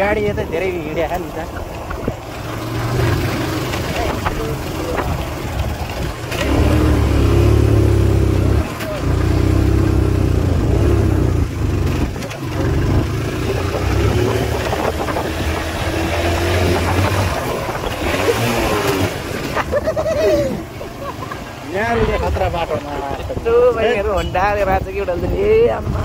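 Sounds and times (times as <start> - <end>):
motorcycle engine running: 0.0 - 22.9.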